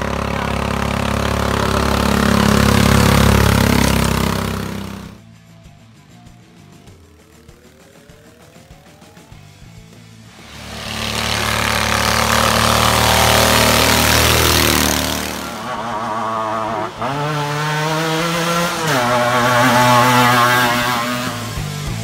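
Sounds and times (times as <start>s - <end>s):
lawnmower engines running hard: 0.0s - 5.2s, 9.9s - 22.0s.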